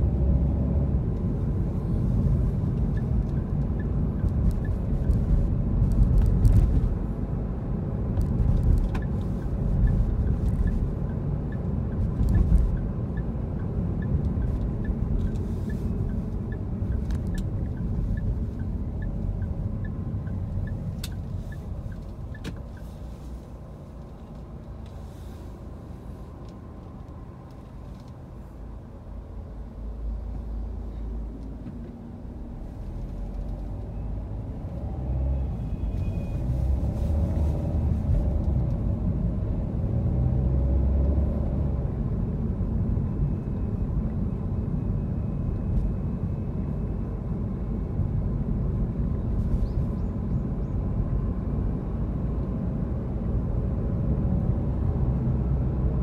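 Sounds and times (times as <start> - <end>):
car cabin road and engine rumble: 0.0 - 56.0.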